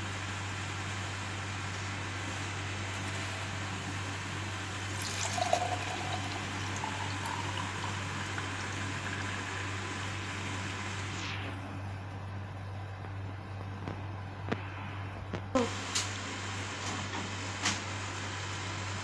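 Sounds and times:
drink pouring into a glass: 0:04.8 - 0:10.8.

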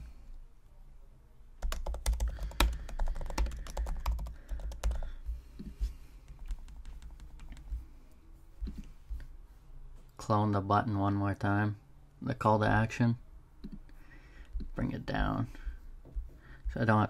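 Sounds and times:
typing on computer keyboard: 0:01.6 - 0:05.1, 0:06.3 - 0:07.7.

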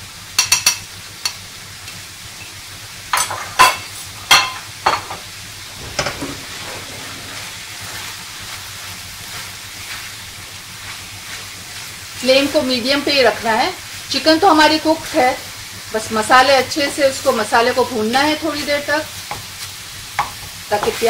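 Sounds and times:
food sizzling in pan: 0:00.0 - 0:21.0
spoon knocking on frying pan: 0:00.4 - 0:01.4, 0:03.1 - 0:05.2, 0:19.2 - 0:21.0.

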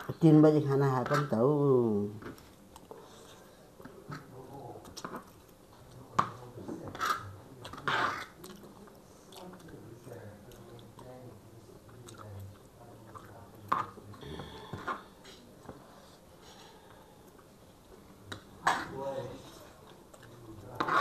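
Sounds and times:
chewing noodles: 0:11.9 - 0:13.4.

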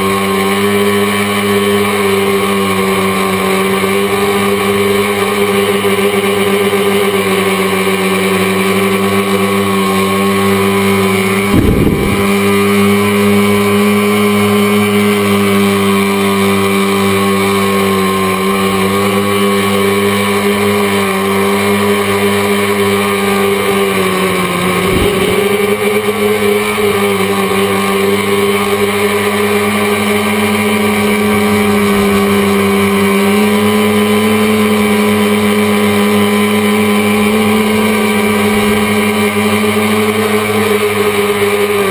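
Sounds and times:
drone propellers buzzing: 0:00.0 - 0:41.9
short low thump: 0:11.6 - 0:12.2.

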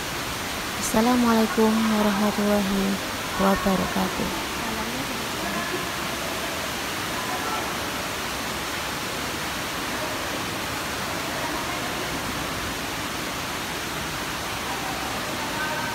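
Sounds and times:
falling water rushing: 0:00.0 - 0:15.9
faint voices: 0:00.8 - 0:08.5.

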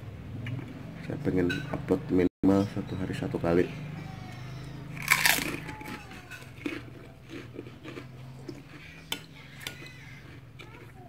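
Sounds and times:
crunching bite of fried wonton: 0:04.9 - 0:10.8.

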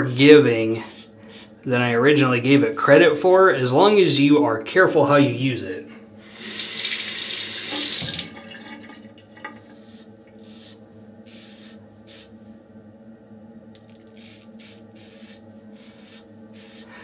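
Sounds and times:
razor scraping stubble: 0:00.0 - 0:01.6, 0:09.6 - 0:12.4, 0:13.8 - 0:17.0
running tap: 0:06.3 - 0:09.8.

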